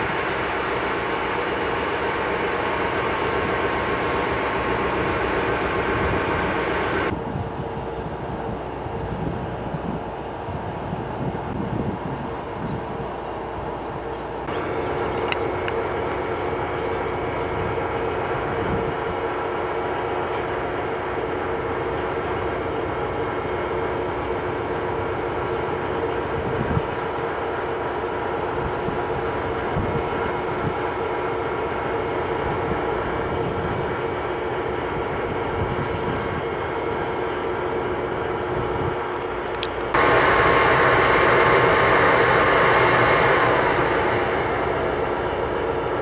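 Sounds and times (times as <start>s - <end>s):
diesel locomotive engine humming: 0.0s - 46.0s.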